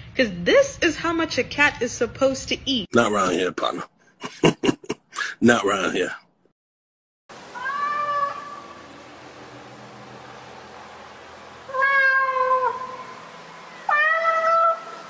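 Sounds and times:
steady background hiss: 7.3s - 11.8s
cat meowing: 7.6s - 8.7s, 11.7s - 13.0s, 13.9s - 15.0s.

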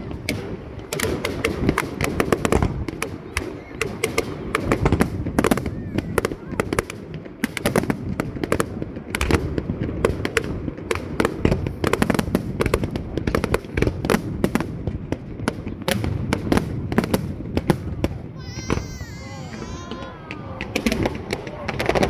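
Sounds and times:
fireworks bursting with sharp bangs: 0.0s - 22.0s.

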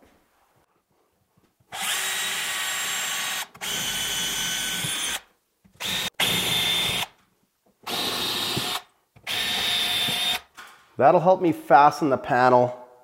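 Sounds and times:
cordless drill drilling: 1.7s - 7.2s, 7.8s - 10.5s.

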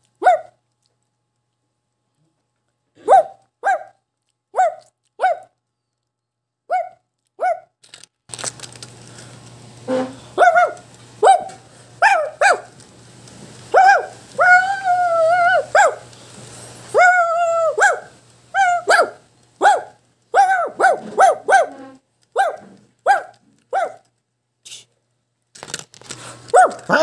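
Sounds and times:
toy dog high barks: 0.2s - 0.6s, 3.0s - 5.5s, 6.7s - 7.7s, 10.4s - 12.7s, 13.7s - 16.0s, 16.9s - 24.1s, 26.5s - 27.0s
toy dog drawn-out howls: 13.7s - 16.0s, 16.9s - 19.2s, 20.4s - 22.6s, 26.6s - 27.0s.

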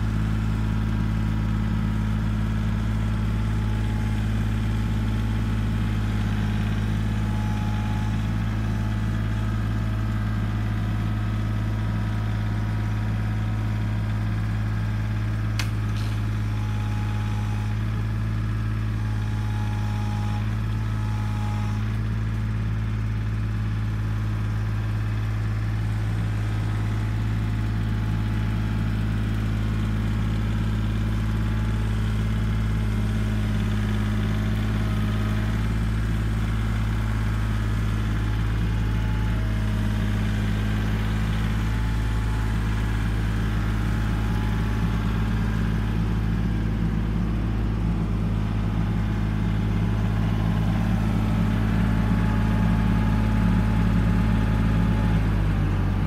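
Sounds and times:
tractor diesel engine running: 0.0s - 56.0s
sharp click: 15.6s - 16.2s.

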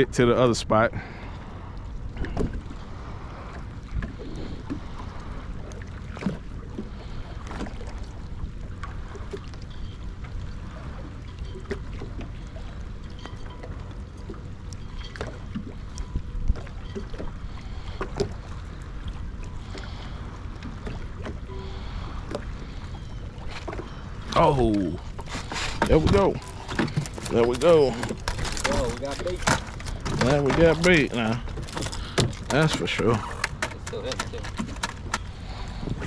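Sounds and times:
wind and water noise: 0.0s - 36.0s.

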